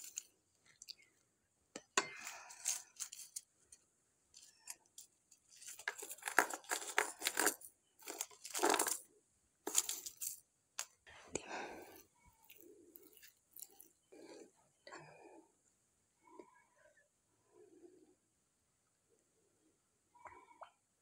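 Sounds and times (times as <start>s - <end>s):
dried chillies crackling when crushed: 0.0s - 1.1s, 2.2s - 3.5s, 5.4s - 9.1s, 9.7s - 10.4s, 11.9s - 14.0s.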